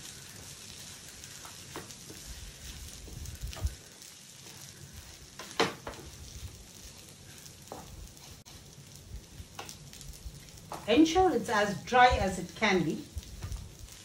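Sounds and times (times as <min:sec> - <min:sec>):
spatula stirring noodles in pan: 0:00.0 - 0:11.0
faint frying sizzle: 0:00.0 - 0:14.0.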